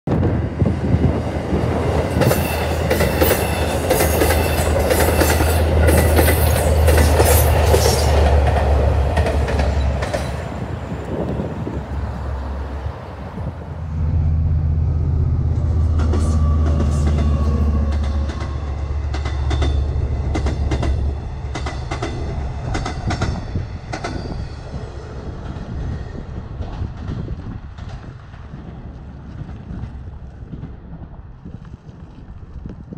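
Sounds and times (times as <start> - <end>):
train rumbling past: 0.1 - 32.6.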